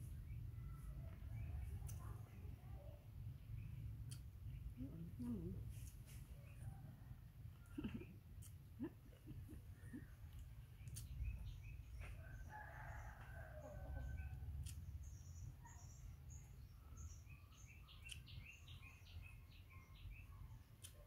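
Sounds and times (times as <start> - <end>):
faint rooster crowing: 6.5 - 7.9, 12.0 - 14.5.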